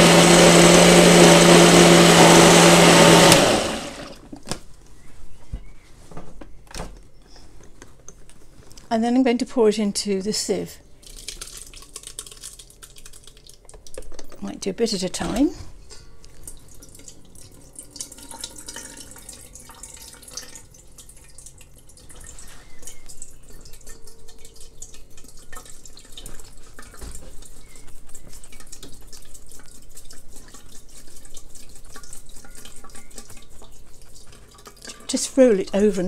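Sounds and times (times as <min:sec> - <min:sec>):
water trickling and dripping: 0:11.0 - 0:14.4, 0:16.0 - 0:36.0.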